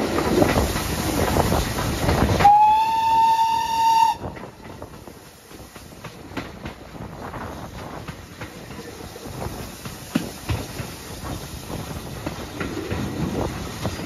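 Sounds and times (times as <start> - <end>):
train rumble: 0.0 - 14.0
wheels clicking over rail joints: 0.0 - 14.0
steam locomotive whistle: 2.4 - 4.5.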